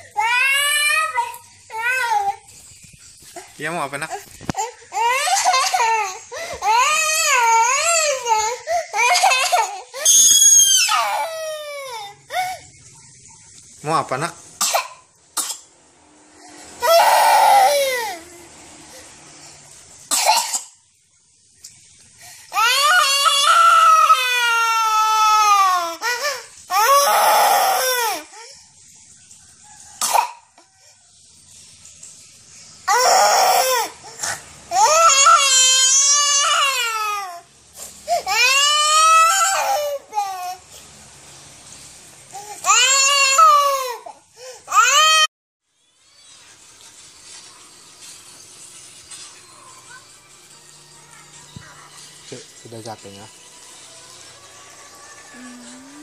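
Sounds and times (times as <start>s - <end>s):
toddler girl wailing: 0.2s - 2.4s, 4.6s - 12.4s, 16.8s - 18.3s, 22.5s - 28.3s, 34.7s - 37.4s, 38.2s - 40.6s, 54.9s - 56.0s.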